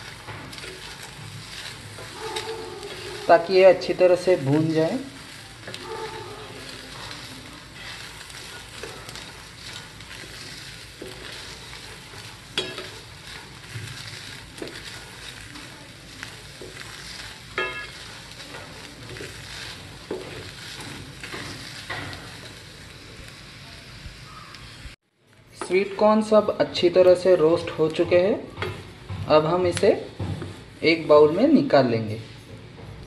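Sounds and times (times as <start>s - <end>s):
kernels clicking against pan: 0.0s - 22.6s
wooden spatula scraping a pan: 0.0s - 23.4s, 25.6s - 32.8s
corn kernels sizzling: 0.0s - 33.0s.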